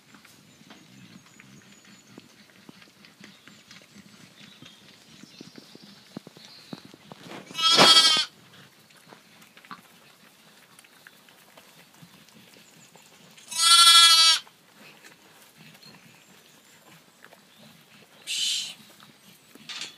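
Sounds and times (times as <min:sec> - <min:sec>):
sheep bleating: 0:07.5 - 0:08.3, 0:13.5 - 0:14.4.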